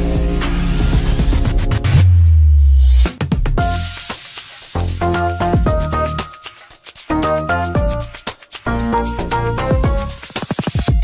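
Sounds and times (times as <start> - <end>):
electronic music with a beat: 0.0 - 11.0.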